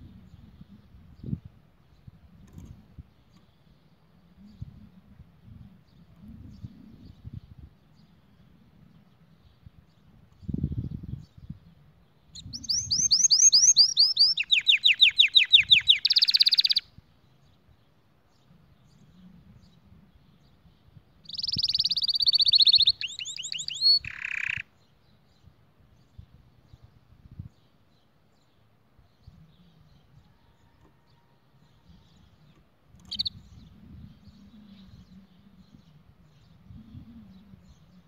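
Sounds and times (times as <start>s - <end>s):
canary singing trills: 12.3s - 17.0s, 21.2s - 25.4s, 29.2s - 38.0s.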